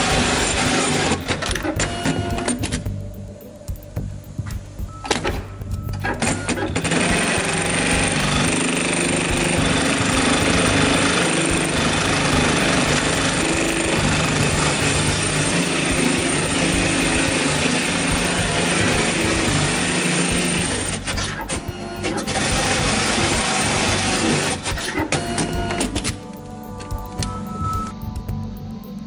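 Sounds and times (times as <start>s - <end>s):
sewing machine running: 0.0s - 2.6s, 6.2s - 26.1s.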